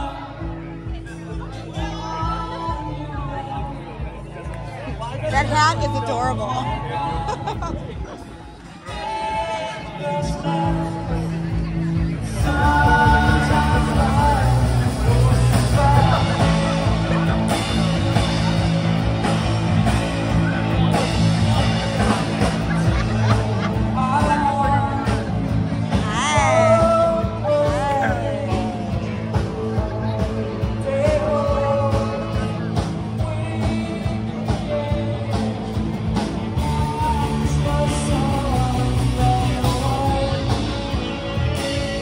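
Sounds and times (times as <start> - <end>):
live rock band playing: 0.0 - 42.0
person singing: 8.8 - 17.7, 23.1 - 42.0.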